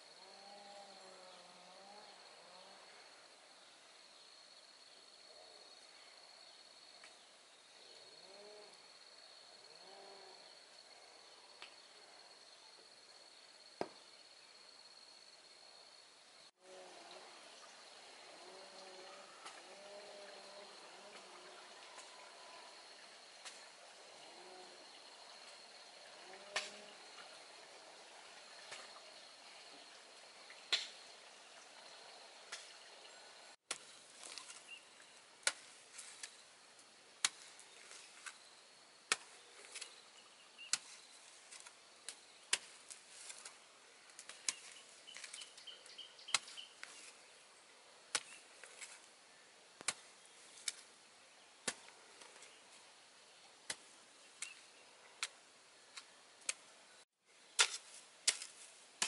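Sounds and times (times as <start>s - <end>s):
hoe striking stony soil: 37.2s - 38.4s, 39.1s - 40.0s, 48.1s - 49.0s, 57.5s - 59.0s.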